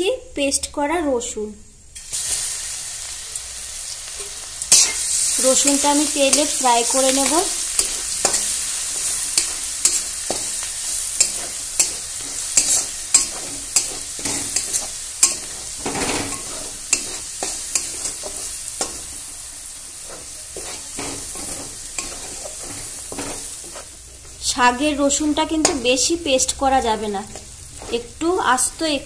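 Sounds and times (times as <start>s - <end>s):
sizzling in hot oil: 1.8s - 29.0s
spatula scraping a metal pan: 7.8s - 19.2s, 20.0s - 24.4s.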